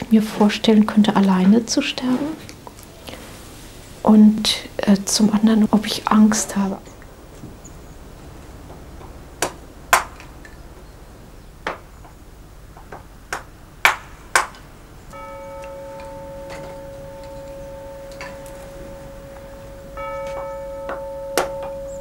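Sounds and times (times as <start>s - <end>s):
sharp irregular knocks: 11.6s - 18.5s
steady bell-like tone: 15.1s - 22.0s.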